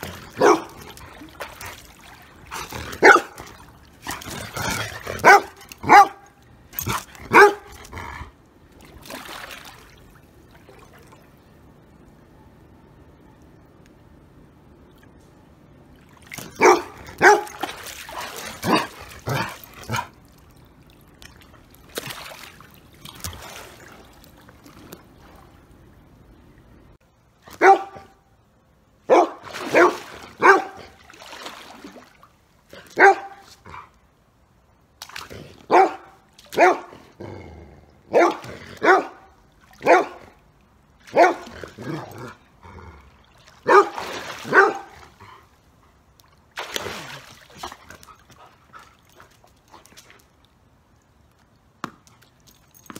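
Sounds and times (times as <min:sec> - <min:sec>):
large dog barking: 0:00.2 - 0:00.8, 0:02.9 - 0:03.4, 0:04.1 - 0:08.1, 0:16.5 - 0:17.6, 0:27.6 - 0:28.2, 0:29.1 - 0:30.9, 0:33.0 - 0:33.4, 0:35.7 - 0:37.0, 0:38.1 - 0:40.3, 0:41.1 - 0:42.1, 0:43.6 - 0:45.0.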